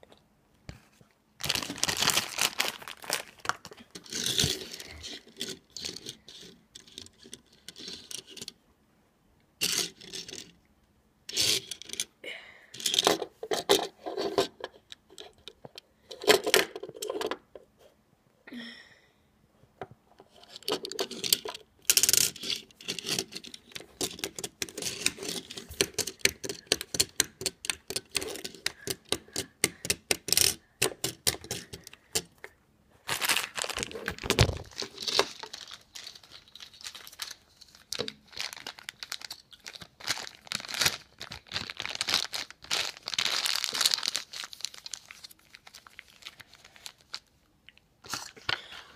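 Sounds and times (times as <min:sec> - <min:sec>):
toy car rattling on wooden surface: 0:04.0 - 0:08.6, 0:09.6 - 0:10.5, 0:11.3 - 0:12.1, 0:20.5 - 0:32.3.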